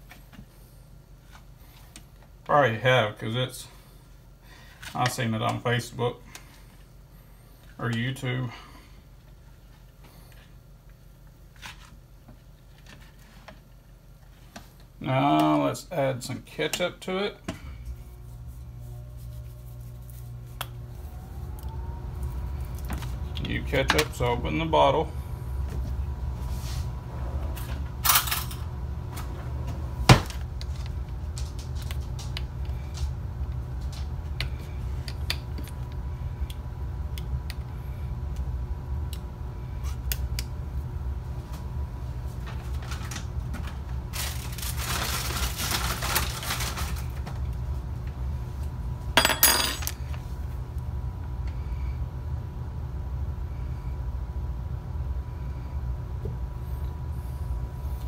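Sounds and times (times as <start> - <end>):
steady low hum: 0.0 - 58.0
plastic rustling: 42.4 - 47.5.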